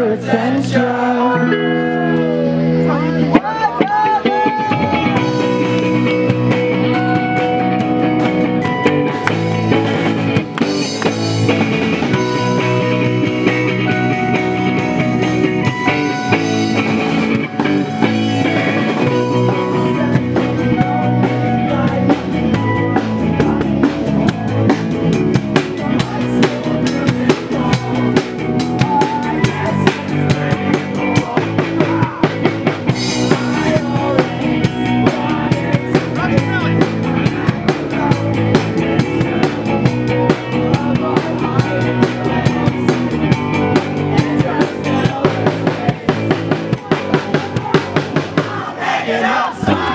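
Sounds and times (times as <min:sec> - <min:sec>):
electric guitar: 0:00.0 - 0:48.4
live rock band playing: 0:00.0 - 0:48.8
drum kit beat: 0:03.2 - 0:49.9.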